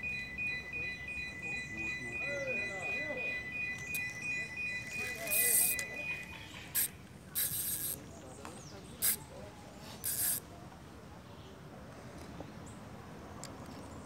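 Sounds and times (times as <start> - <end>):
fishing reel drag buzzing: 5.1 - 5.9, 6.7 - 8.0, 9.0 - 9.2, 10.0 - 10.4.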